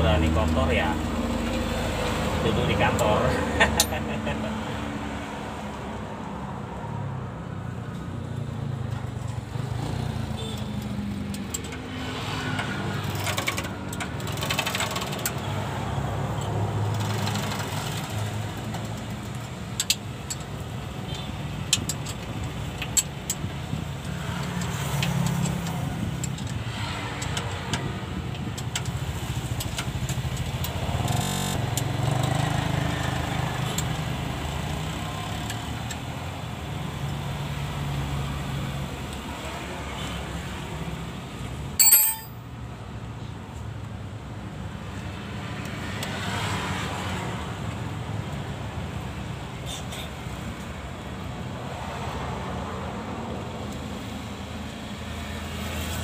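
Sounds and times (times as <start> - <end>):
motor vehicle rumble: 0.0 - 56.0
hand tools clicking on bolts: 2.9 - 4.2, 12.6 - 15.5, 16.4 - 20.7, 21.3 - 32.5, 41.8 - 42.4.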